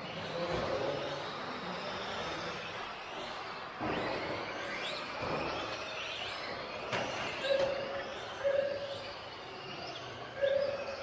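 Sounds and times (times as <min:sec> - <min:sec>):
rc car motors whining: 0:00.0 - 0:11.0.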